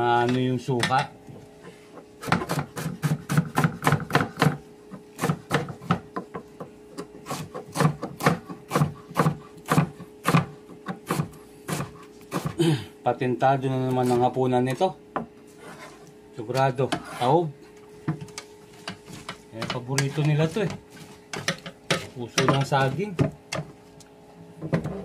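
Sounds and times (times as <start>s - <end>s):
knife chopping on cutting board: 2.2s - 12.6s, 18.8s - 23.7s.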